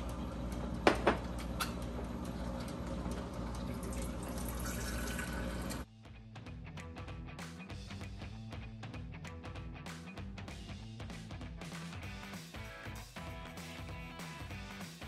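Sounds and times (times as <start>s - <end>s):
tap running into sink: 0.8s - 1.8s.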